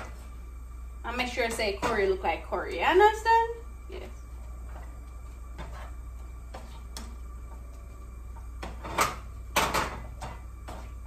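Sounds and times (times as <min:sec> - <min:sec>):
spatula scraping a frying pan: 0:04.6 - 0:07.2, 0:08.6 - 0:11.0.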